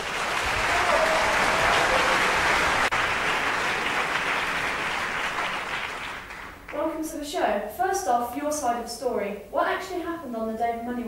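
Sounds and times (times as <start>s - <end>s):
applause: 0.0s - 6.8s.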